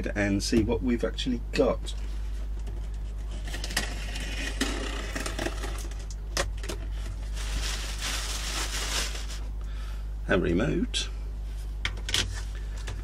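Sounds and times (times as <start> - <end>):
steady low hum: 0.0 - 13.0
cardboard and plastic rustling: 6.6 - 9.5.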